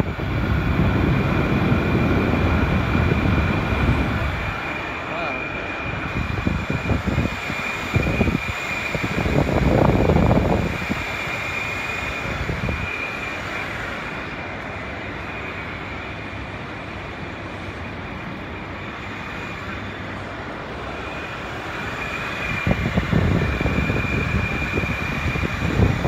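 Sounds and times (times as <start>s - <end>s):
air buffeting microphone: 0.0s - 14.8s, 22.2s - 26.0s
air conditioner fan rushing: 0.0s - 26.0s.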